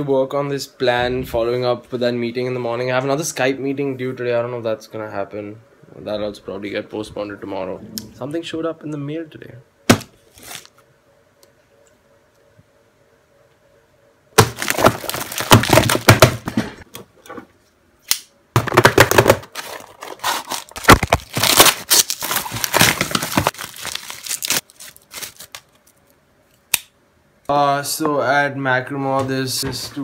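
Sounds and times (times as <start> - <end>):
plastic packaging tearing and crinkling: 10.3 - 10.7, 14.4 - 16.4, 19.2 - 26.0.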